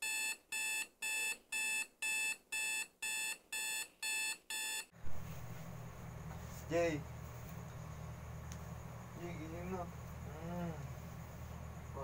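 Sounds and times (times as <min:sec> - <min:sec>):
alarm beeping: 0:00.0 - 0:04.9.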